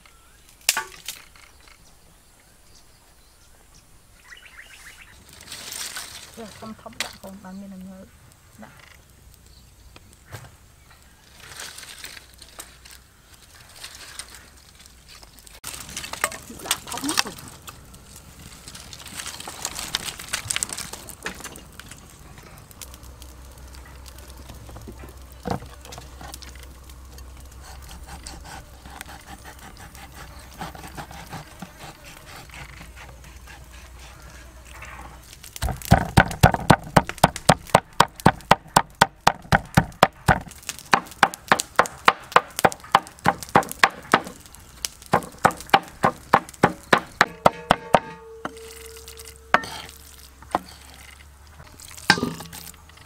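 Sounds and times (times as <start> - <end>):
chopping on a wooden board: 35.6 - 44.4, 45.1 - 48.2.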